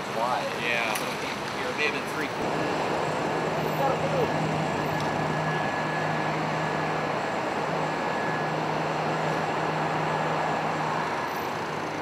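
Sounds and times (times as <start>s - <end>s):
faint high whine: 2.2s - 11.5s.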